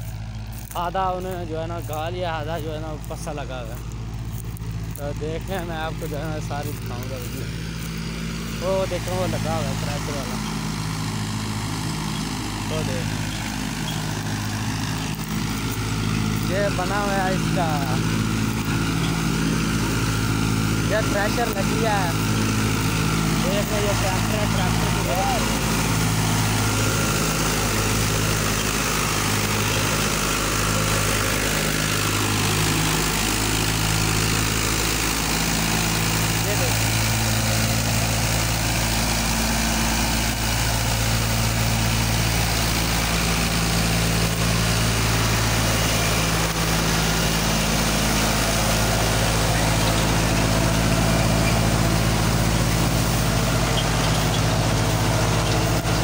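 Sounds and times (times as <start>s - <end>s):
thresher rushing noise: 0.0s - 56.0s
tractor diesel engine running: 0.0s - 56.0s.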